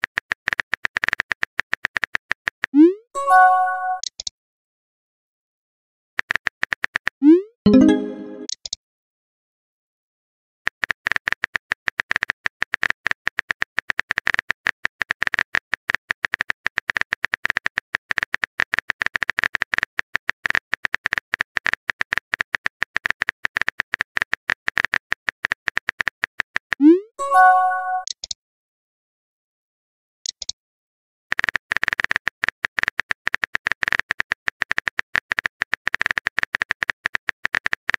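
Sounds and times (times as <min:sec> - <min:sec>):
bright chime: 0:03.2 - 0:04.0, 0:27.2 - 0:28.0.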